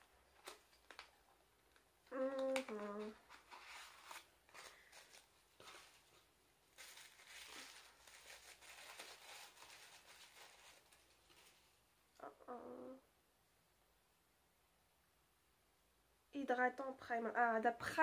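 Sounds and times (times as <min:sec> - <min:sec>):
tissue paper crinkling: 0:00.3 - 0:11.9
woman humming: 0:02.1 - 0:03.2, 0:12.2 - 0:13.1.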